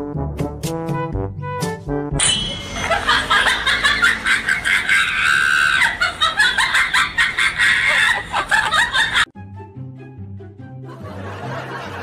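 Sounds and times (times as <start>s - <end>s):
person laughing and shrieking: 2.6s - 9.3s.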